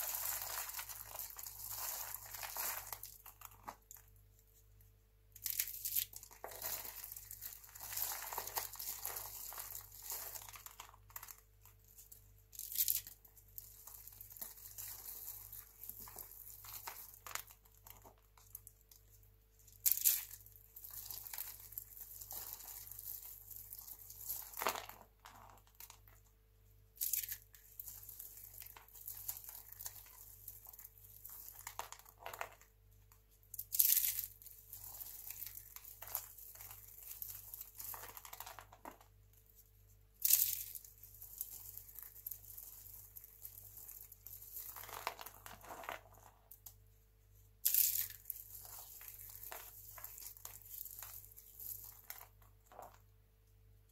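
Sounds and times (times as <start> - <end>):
flakes rustling: 0.0 - 4.2, 5.4 - 18.5, 19.7 - 26.2, 40.2 - 46.5, 47.6 - 53.0
soap crunching and crackling: 0.0 - 4.6, 5.3 - 26.3, 26.9 - 46.8, 47.6 - 53.1.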